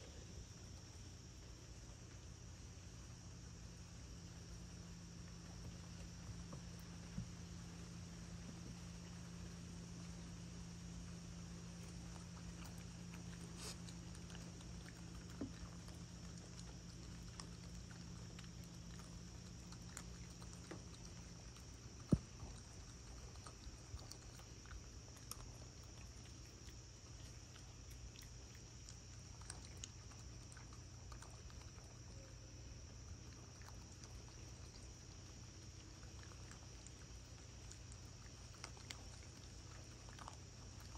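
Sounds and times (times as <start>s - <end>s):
low hum: 0.0s - 26.2s
animal crunching dry food: 3.2s - 40.9s.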